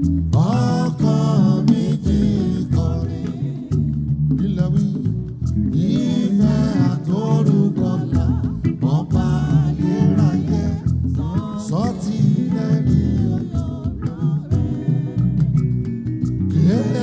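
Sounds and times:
live gospel band with heavy bass: 0.0 - 17.0
lead vocal singing: 0.3 - 15.6, 16.5 - 17.0.

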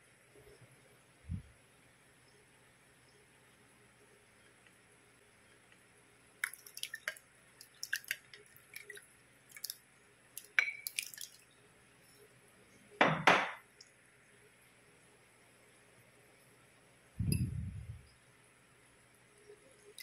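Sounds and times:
wet clicks and splats: 6.4 - 9.8, 10.4 - 11.4.

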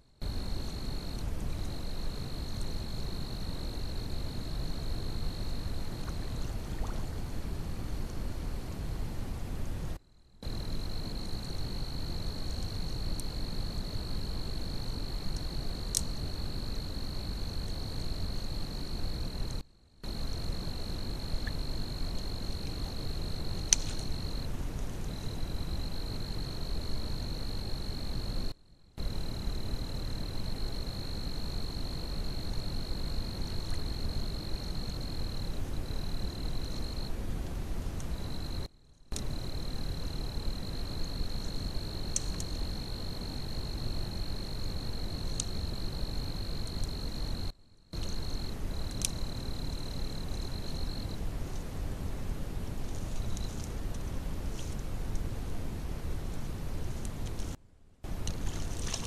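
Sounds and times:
faint clicks: 41.4 - 42.6.

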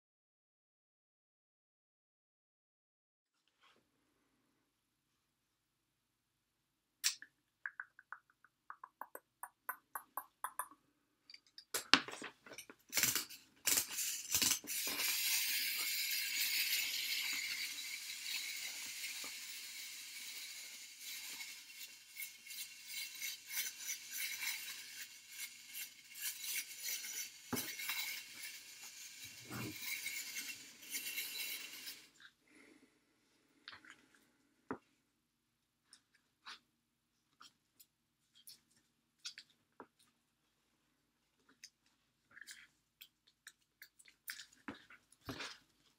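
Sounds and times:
metallic clicks of tin toy: 12.9 - 32.1
toy robot whirring: 12.9 - 32.2.

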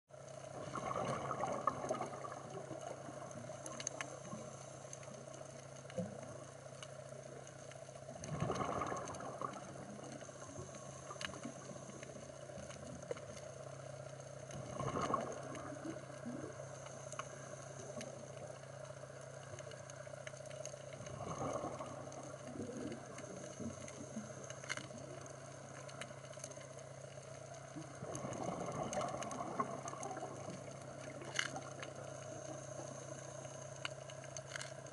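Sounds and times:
underwater diver bubbles rushing: 0.5 - 4.5, 8.1 - 13.2, 14.5 - 16.6, 21.0 - 25.2, 27.6 - 33.0.

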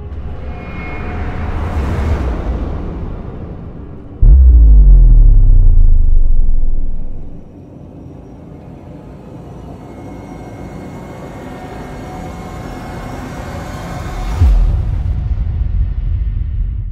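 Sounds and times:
heavy low hit: 4.2 - 7.5
low rumbling drone: 4.2 - 7.5.

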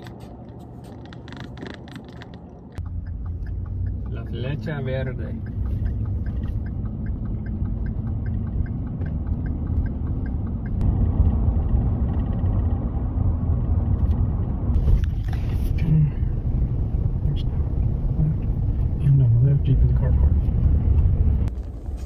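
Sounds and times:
light regular ticking: 0.0 - 10.8
engine and tyre rumble: 0.0 - 22.0.

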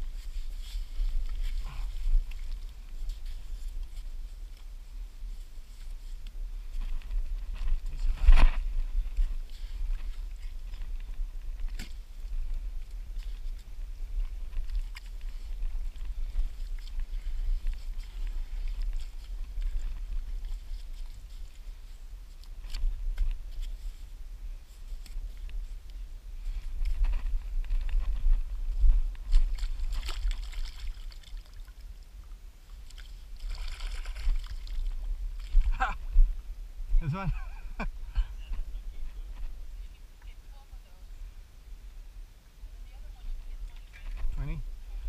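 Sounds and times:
low microphone rumble: 6.4 - 30.5, 31.9 - 45.0
water splashing and sloshing: 29.2 - 32.0, 32.6 - 36.0.

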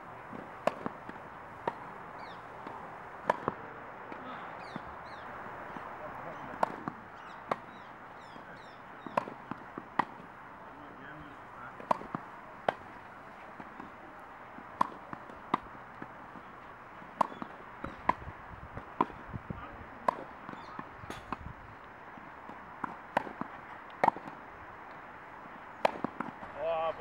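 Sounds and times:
tennis balls struck by rackets: 0.3 - 26.6
tennis balls bouncing on court: 0.3 - 27.0.

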